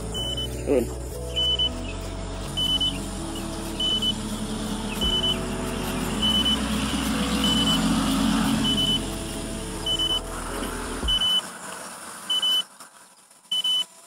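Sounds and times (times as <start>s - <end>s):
high electronic warning beep: 0.0s - 1.9s, 2.6s - 4.3s, 5.0s - 5.5s, 6.2s - 6.8s, 7.4s - 7.9s, 8.6s - 9.1s, 9.8s - 10.3s, 11.1s - 11.4s, 12.3s - 12.7s, 13.5s - 13.9s
rushing background noise: 0.0s - 14.0s.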